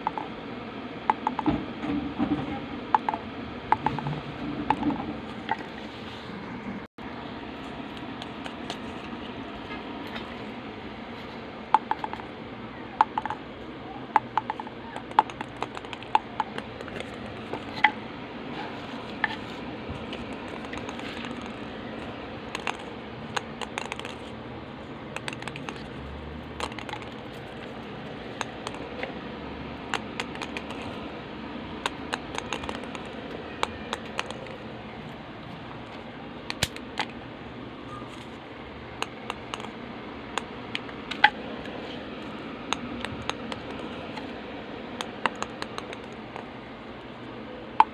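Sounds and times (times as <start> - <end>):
table tennis balls clicking: 0.0 - 0.3, 1.0 - 1.6, 2.9 - 5.6, 11.7 - 12.4, 13.0 - 13.5, 14.1 - 18.0, 20.0 - 24.4, 25.1 - 29.2, 29.8 - 31.1, 31.8 - 34.7, 38.9 - 46.6.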